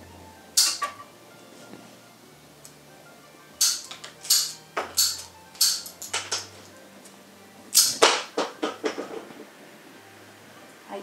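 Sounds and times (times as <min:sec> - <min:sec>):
scissors snipping twigs: 0:07.7 - 0:08.1.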